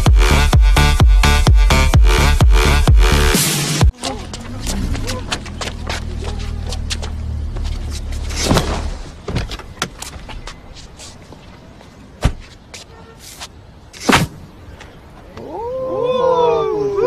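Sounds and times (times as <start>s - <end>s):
sharp knocks and thuds: 4.7s - 10.4s, 12.2s - 12.6s.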